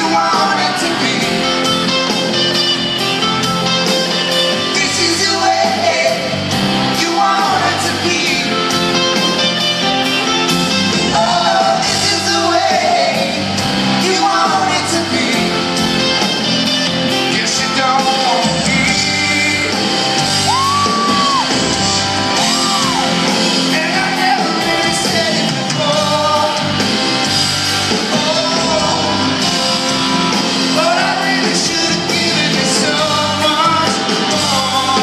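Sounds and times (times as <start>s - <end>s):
man singing: 0.0s - 2.4s, 4.4s - 9.1s, 11.1s - 16.0s, 16.8s - 21.4s, 22.4s - 27.0s, 27.9s - 29.7s, 30.7s - 35.0s
live rock band playing: 0.0s - 35.0s.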